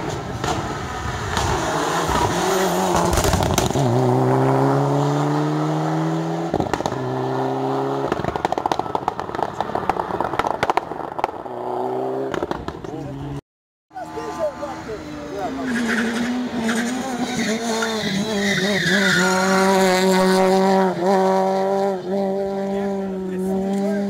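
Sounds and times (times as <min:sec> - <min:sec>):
rally car engine accelerating: 0:00.1 - 0:13.3, 0:14.4 - 0:24.0
exhaust crackles and pops: 0:02.9 - 0:03.8, 0:06.5 - 0:07.1, 0:08.0 - 0:11.6, 0:12.3 - 0:13.1.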